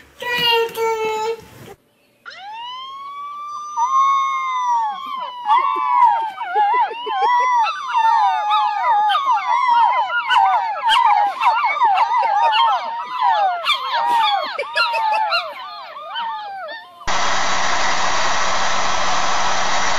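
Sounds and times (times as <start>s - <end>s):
puppies howling: 2.2s - 17.1s.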